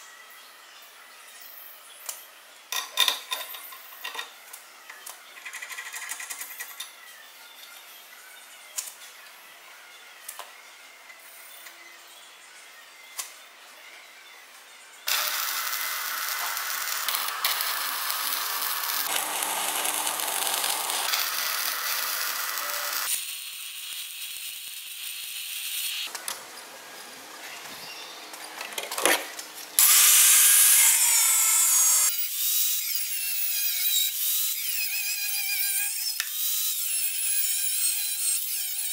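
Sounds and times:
arc welding crackling and hissing: 0:15.1 - 0:26.2.

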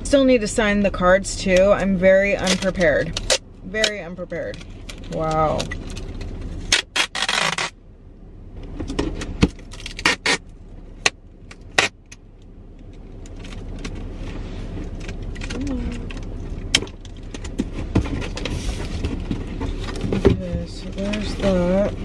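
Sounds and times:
tape and box rustling: 0:02.3 - 0:07.8, 0:08.8 - 0:10.4
packing tape ripping: 0:05.8 - 0:07.7, 0:09.7 - 0:10.4, 0:11.7 - 0:12.0.

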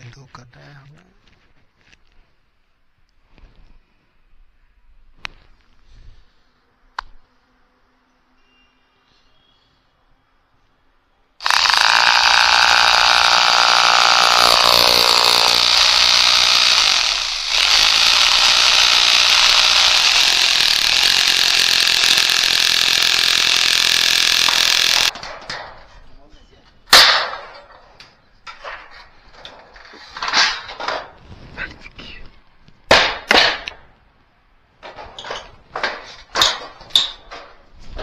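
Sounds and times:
cordless drill boring into masonry: 0:11.4 - 0:25.2.

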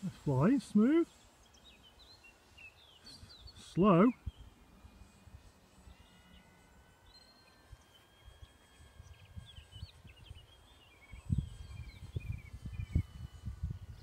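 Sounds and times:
small birds chirping: 0:00.0 - 0:14.0
wind rumbling on microphone: 0:07.7 - 0:14.0.

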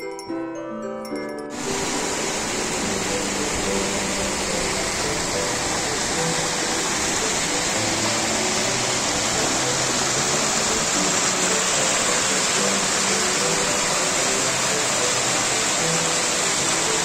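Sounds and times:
stream rushing over rocks: 0:01.5 - 0:17.0.

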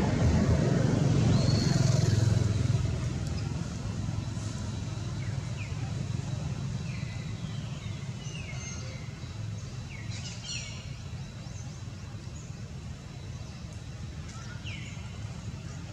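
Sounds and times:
low rumble: 0:00.0 - 0:04.6.

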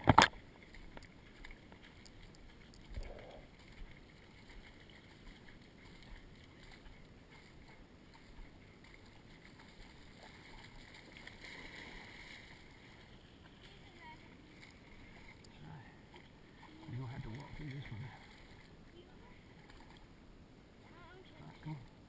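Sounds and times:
wading through shallow water: 0:00.0 - 0:22.0.

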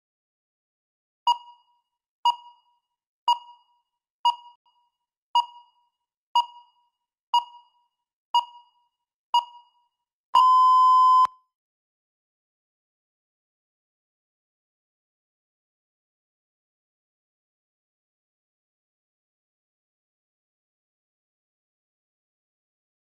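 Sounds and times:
timer short beeps: 0:01.3 - 0:01.7, 0:03.3 - 0:03.7, 0:04.3 - 0:04.6, 0:05.4 - 0:05.8, 0:06.4 - 0:06.8, 0:07.4 - 0:07.8, 0:08.4 - 0:08.8, 0:09.4 - 0:09.8, 0:10.4 - 0:11.4
long steady beep: 0:10.4 - 0:11.4.

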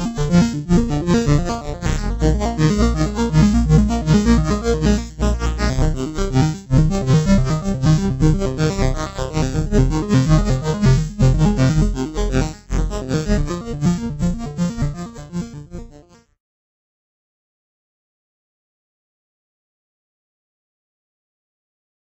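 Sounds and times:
electronic synthesizer music: 0:00.0 - 0:16.2.

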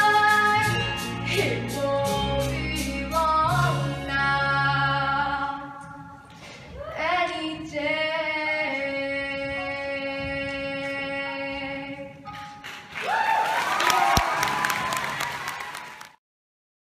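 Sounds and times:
girl singing: 0:00.0 - 0:12.2.

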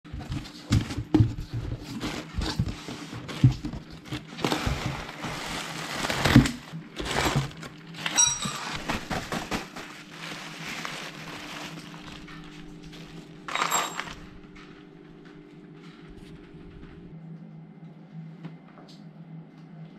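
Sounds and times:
plastic packaging crinkling: 0:01.8 - 0:14.4.

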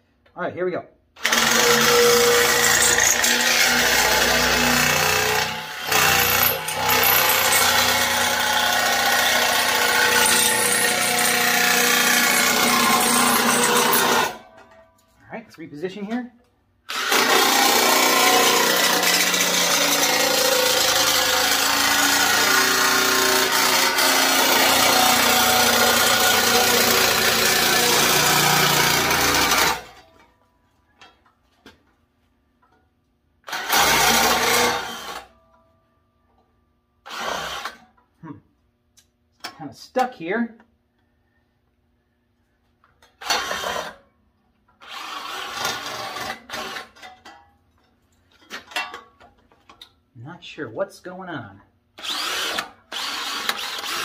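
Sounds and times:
electric drill driving nibbler: 0:01.2 - 0:14.4, 0:52.0 - 0:54.0.

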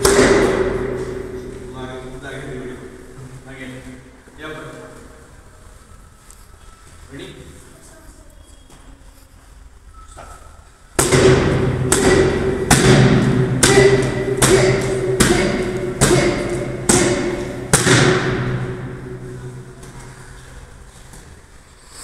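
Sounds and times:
kicks smacking a focus mitt: 0:00.0 - 0:01.0, 0:11.0 - 0:18.8.

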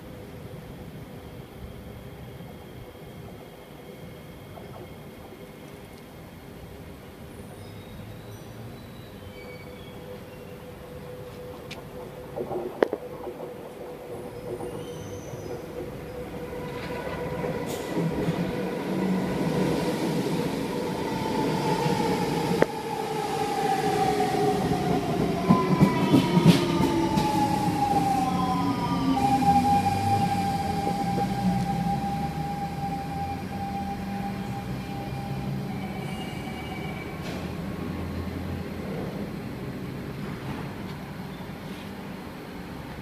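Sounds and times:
train motor whine: 0:09.3 - 0:37.6
train wheels rumbling and clattering: 0:11.2 - 0:34.4, 0:35.8 - 0:43.0.

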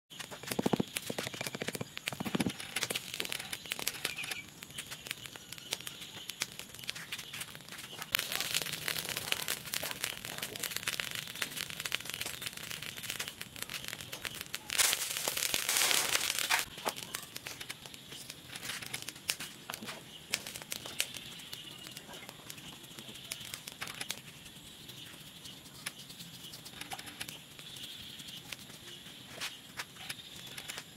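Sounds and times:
crackling and clicks: 0:00.1 - 0:30.9
molten metal hissing rush: 0:07.6 - 0:16.7.

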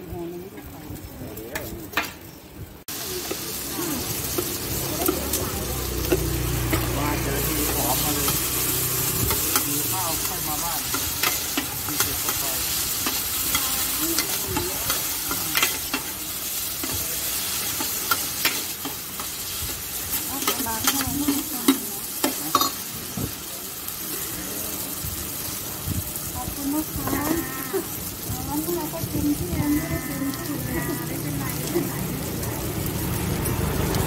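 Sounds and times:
noodles sizzling in a pan: 0:02.8 - 0:34.0
metal utensils clacking on a pan: 0:03.2 - 0:23.1.

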